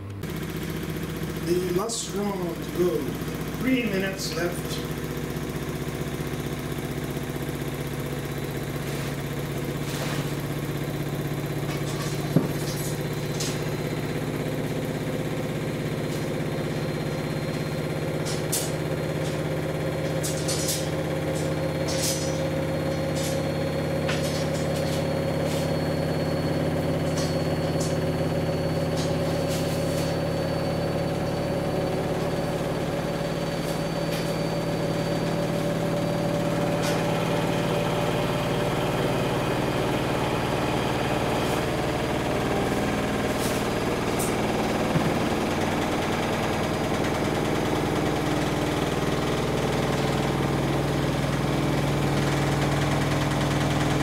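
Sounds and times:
washing machine motor hum: 0:00.0 - 0:54.0
washing machine knocking and rattling: 0:04.8 - 0:29.5, 0:42.0 - 0:54.0.

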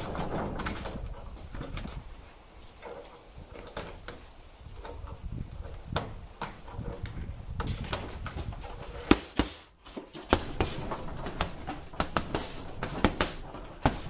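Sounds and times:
gloves thudding on punching bag: 0:09.0 - 0:14.0.

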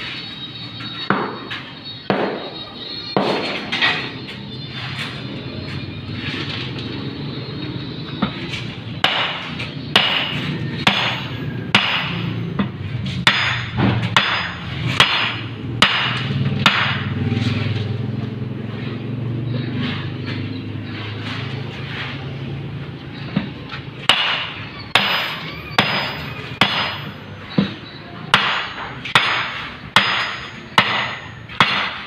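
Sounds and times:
hammer strikes: 0:00.8 - 0:06.4, 0:08.1 - 0:17.9, 0:23.2 - 0:32.0.

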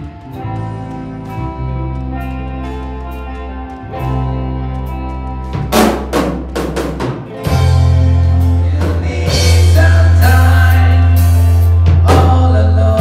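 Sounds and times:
guitar: 0:00.0 - 0:13.0
drum kit hits and fills: 0:05.5 - 0:13.0
bass guitar low note: 0:07.4 - 0:13.0
person singing: 0:07.5 - 0:13.0.

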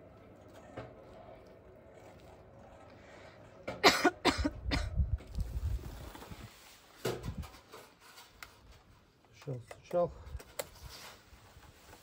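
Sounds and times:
person coughing: 0:03.8 - 0:05.0.

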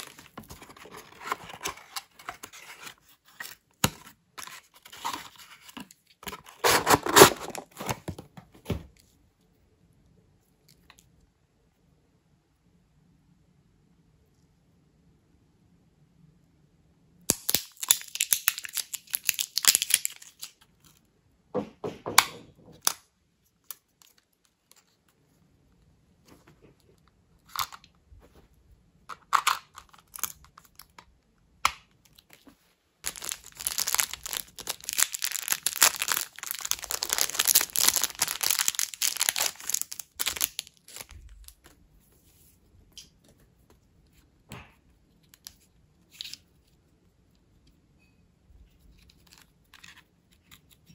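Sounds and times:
packaging tearing and crinkling: 0:04.4 - 0:08.1, 0:17.3 - 0:20.5, 0:33.0 - 0:41.6.

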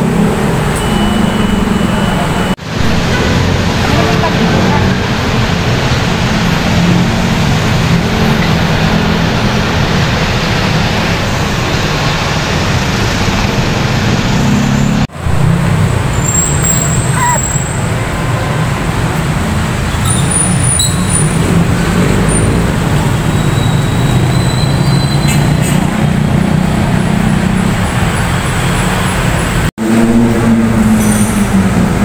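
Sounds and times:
road traffic rumble: 0:00.0 - 0:32.0.

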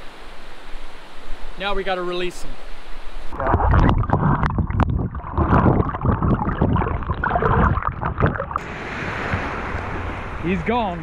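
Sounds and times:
muffled underwater surf churning: 0:03.1 - 0:11.0
bubbly crackles: 0:03.3 - 0:08.6
breaking surf hiss: 0:08.6 - 0:11.0.

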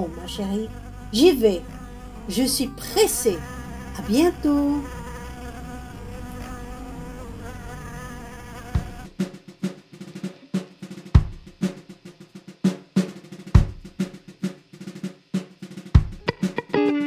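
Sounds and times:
deep bass drum hits: 0:08.7 - 0:09.4, 0:11.2 - 0:11.6, 0:13.6 - 0:14.0, 0:16.0 - 0:16.2
quick snare drum strokes: 0:08.8 - 0:16.7.

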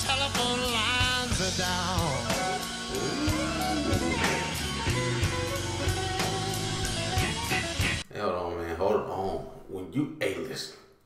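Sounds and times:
person singing: 0:00.0 - 0:06.3
drums and bass: 0:00.0 - 0:08.0
electric guitar: 0:00.0 - 0:08.0.

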